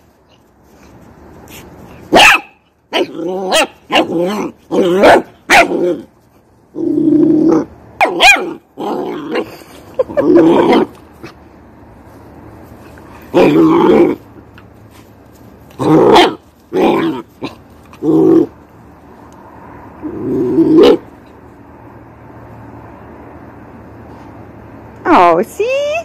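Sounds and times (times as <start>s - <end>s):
puppy barking: 2.1s - 4.2s, 4.8s - 5.8s, 8.0s - 8.6s
puppy growling: 3.0s - 11.4s, 13.3s - 14.3s, 15.7s - 18.6s, 20.0s - 21.1s.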